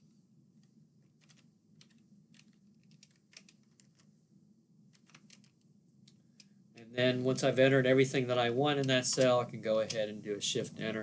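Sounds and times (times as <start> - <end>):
faint low hum: 0.0 - 11.0
keyboard typing: 1.2 - 4.1, 4.9 - 6.5.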